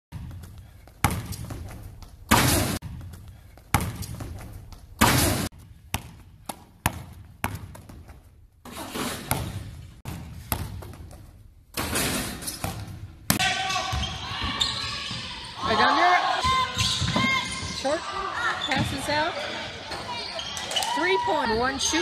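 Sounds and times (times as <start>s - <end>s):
basketball bouncing on gym floor: 0.1s - 8.2s, 9.2s - 11.4s, 18.7s - 19.1s
rim and backboard banging: 5.0s - 5.5s.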